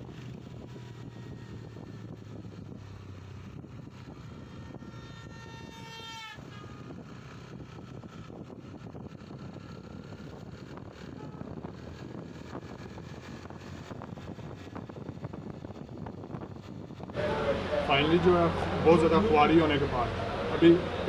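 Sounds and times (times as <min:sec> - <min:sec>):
motorcycle engine running: 0:00.0 - 0:05.7, 0:06.4 - 0:21.0
wind rush on microphone: 0:00.0 - 0:21.0
vehicle horn: 0:04.6 - 0:07.1, 0:11.0 - 0:11.6.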